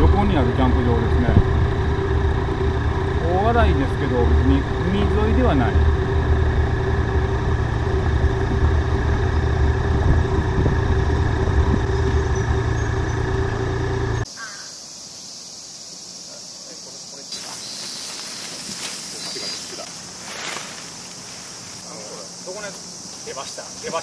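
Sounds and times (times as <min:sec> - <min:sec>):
motorcycle engine running: 0:00.0 - 0:14.3
insects buzzing: 0:00.0 - 0:24.0
wind rush: 0:07.7 - 0:12.2.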